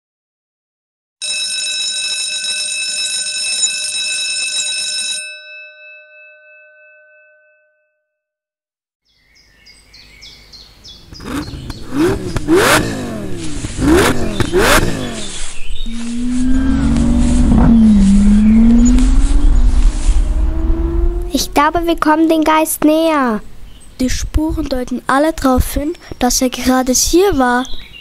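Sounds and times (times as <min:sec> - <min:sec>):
car engine revving sound effect: 0:11.1 - 0:22.2
ringing tone of several pitches: 0:15.8 - 0:21.3.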